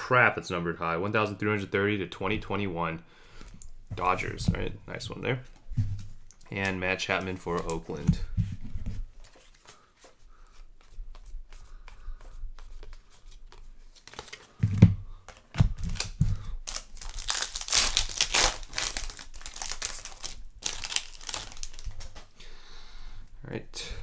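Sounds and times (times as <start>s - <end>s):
dull thumps: 5.6s - 6.2s
foil wrapper crinkling and tearing: 15.3s - 22.3s.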